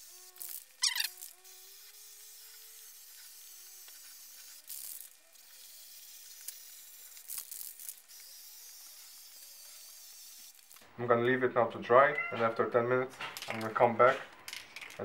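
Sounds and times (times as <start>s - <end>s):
aerosol spray can hissing: 0.0s - 4.9s.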